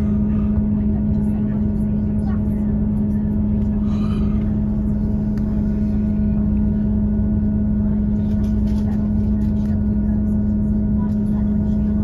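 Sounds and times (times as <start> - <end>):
train drone from inside carriage: 0.0 - 12.0.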